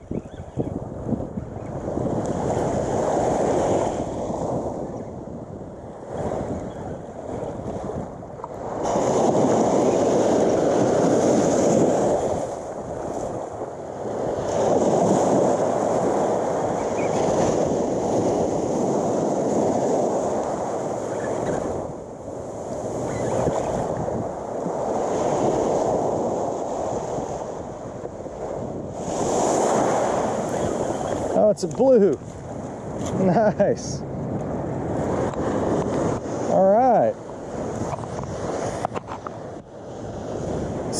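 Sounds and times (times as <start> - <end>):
surf breaking on beach: 0.8 - 40.9.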